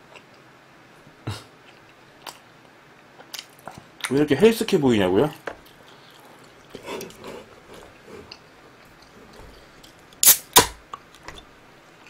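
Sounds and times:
soda can pull tab cracks: 0:10.2 - 0:10.8.

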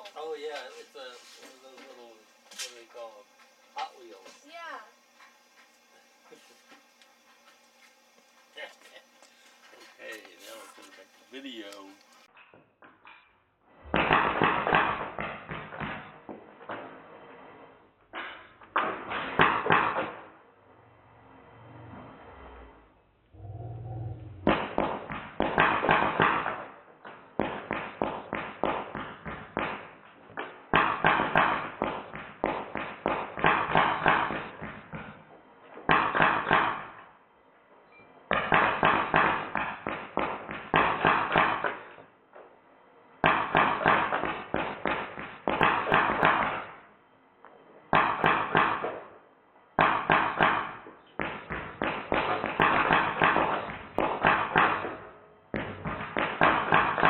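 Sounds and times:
bb gun firing full-auto bursts: 0:14.0 - 0:16.1, 0:24.5 - 0:26.8, 0:27.4 - 0:34.8, 0:35.9 - 0:37.0, 0:38.3 - 0:41.9, 0:43.2 - 0:46.7, 0:49.8 - 0:57.0.

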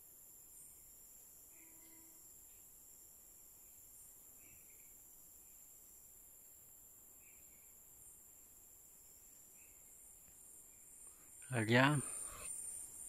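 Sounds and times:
high-pitched insect drone: 0:00.6 - 0:06.5.

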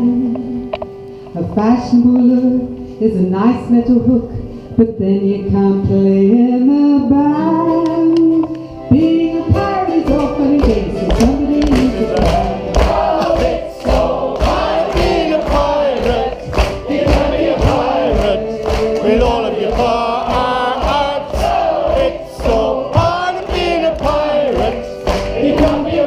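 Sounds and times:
folk band playing: 0:07.5 - 0:26.0
people singing together: 0:09.0 - 0:26.0.

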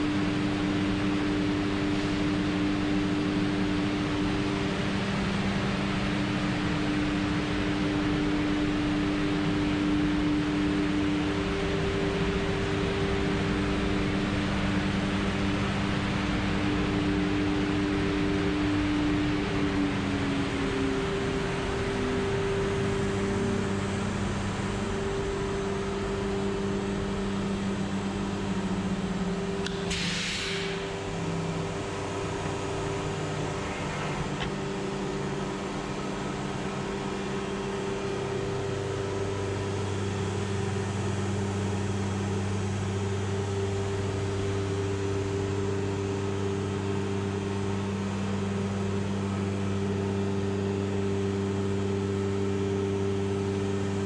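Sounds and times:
machine humming: 0:00.0 - 0:54.0
short hiss of air: 0:29.9 - 0:30.9.

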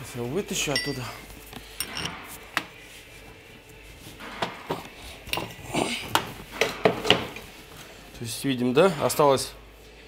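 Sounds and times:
pry tool scraping metal: 0:01.8 - 0:02.2.

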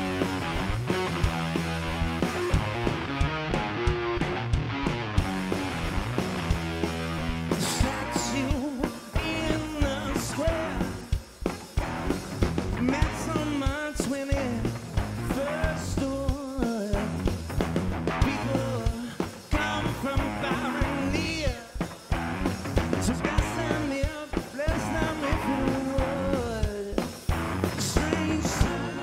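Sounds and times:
rock band playing: 0:00.0 - 0:29.0
man singing lead vocal: 0:07.5 - 0:11.2, 0:12.8 - 0:17.4, 0:18.1 - 0:22.2, 0:22.8 - 0:29.0.

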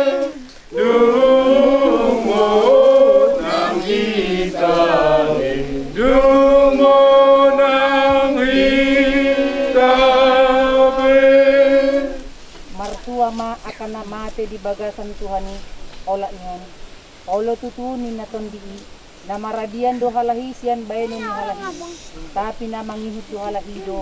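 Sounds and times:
group singing a slow hymn: 0:00.0 - 0:13.3.

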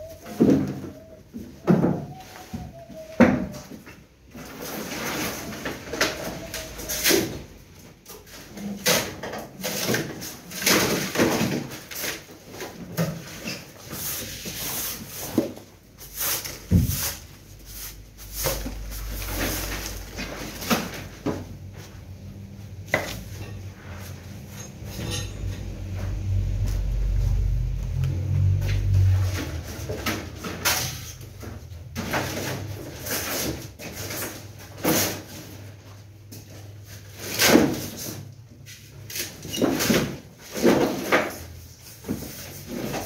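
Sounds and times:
broom sweeping debris: 0:13.7 - 0:21.0
low steady rumble: 0:21.4 - 0:31.9.

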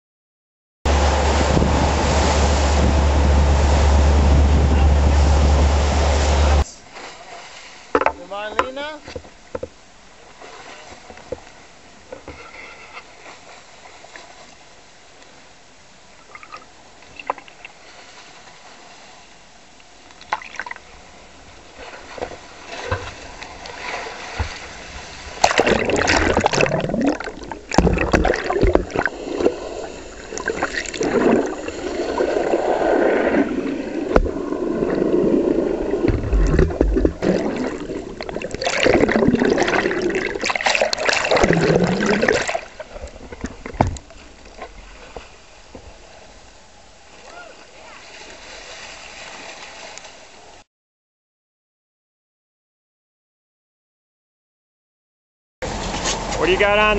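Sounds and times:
underwater rushing and gurgling: 0:00.9 - 0:08.0, 0:20.4 - 0:47.2
water lapping: 0:00.9 - 0:14.8, 0:16.3 - 0:50.6
small splashes: 0:21.8 - 0:45.4.

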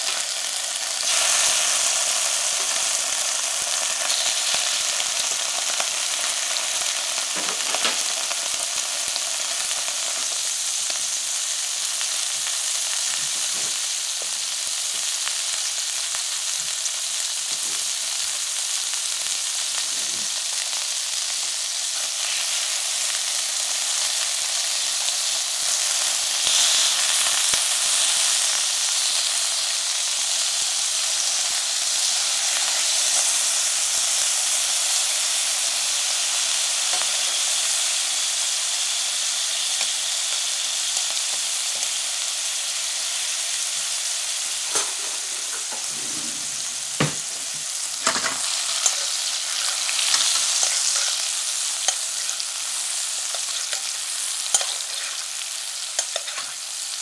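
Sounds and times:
pork sizzling in a pan: 0:00.0 - 0:57.0
utensils clicking against pan: 0:48.0 - 0:51.2, 0:53.3 - 0:55.3, 0:55.9 - 0:56.6.

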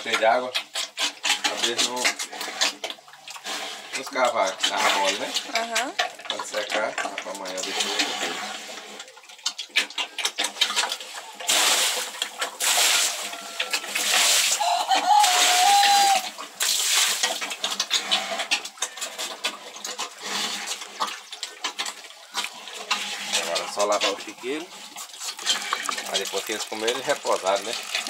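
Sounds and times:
pigs chewing and slurping: 0:00.0 - 0:28.0
splashing in trough: 0:00.0 - 0:28.0
pig high cry: 0:12.8 - 0:16.4.

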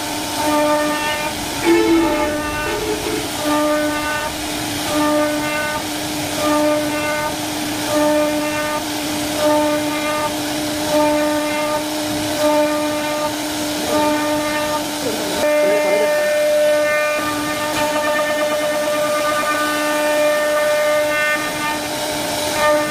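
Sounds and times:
cnc router spindle whining: 0:00.0 - 0:05.9.

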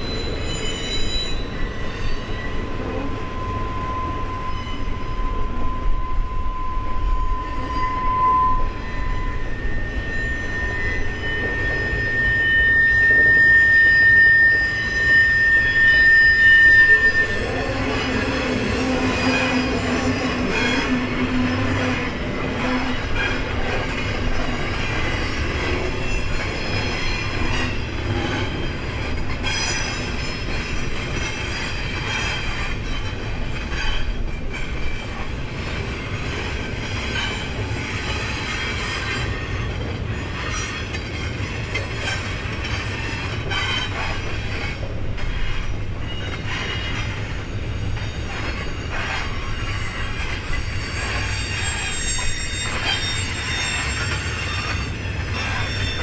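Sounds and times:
wheels squealing on rail: 0:00.0 - 0:56.0.

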